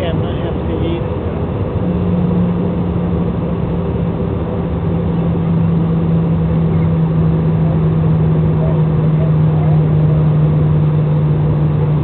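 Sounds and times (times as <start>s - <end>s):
jet engine drone: 0.0s - 12.0s
rush of air in airliner cabin: 0.0s - 12.0s.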